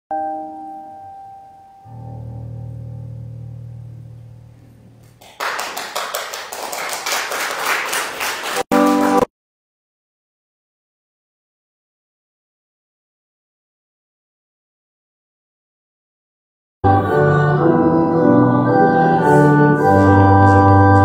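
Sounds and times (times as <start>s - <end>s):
instrumental church music: 0.1s - 5.2s, 8.3s - 9.3s, 16.8s - 21.0s.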